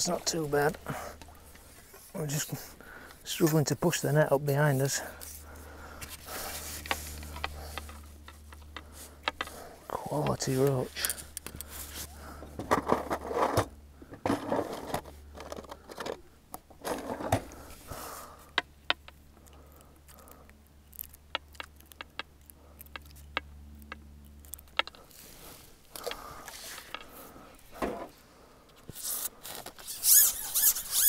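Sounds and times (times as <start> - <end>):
sharp clicks: 18.6 - 25.0.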